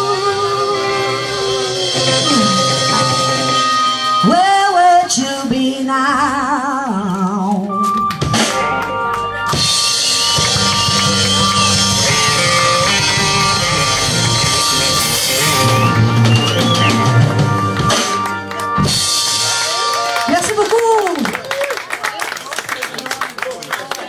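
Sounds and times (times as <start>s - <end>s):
woman singing: 0.0s - 8.0s
live rock band: 0.0s - 21.6s.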